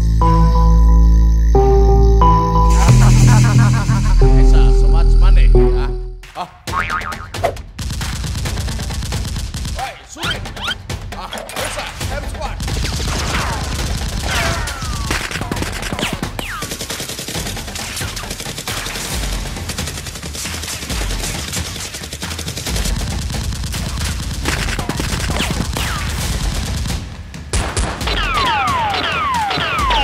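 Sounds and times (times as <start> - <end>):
rapid automatic gunfire: 7.6 - 30.0.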